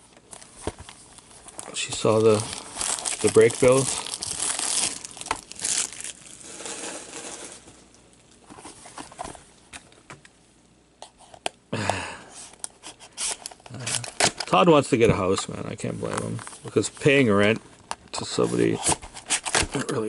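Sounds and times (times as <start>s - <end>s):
plastic wrap crinkling and tearing: 0.4s - 7.8s, 13.2s - 14.7s.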